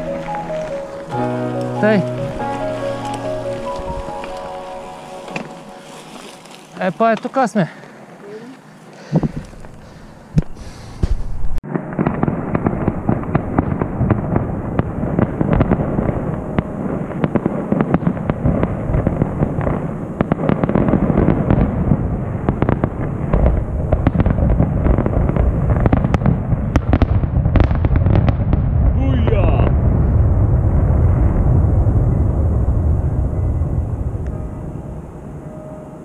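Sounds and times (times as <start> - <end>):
fireworks crackling and banging: 0.0 - 7.6, 9.0 - 34.6
low rumble: 20.9 - 36.0.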